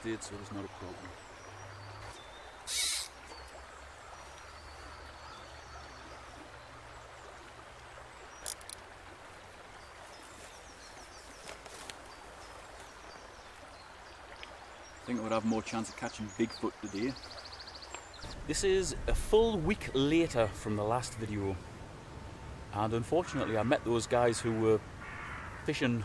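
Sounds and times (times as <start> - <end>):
river water over riffle: 0.0 - 26.0
faint bird chirps: 0.3 - 6.8
loud hiss: 2.7 - 3.1.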